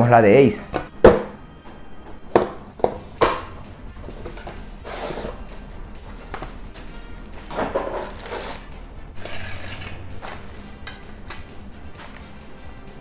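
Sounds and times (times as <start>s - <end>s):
knocks and taps on box: 2.3s - 3.4s.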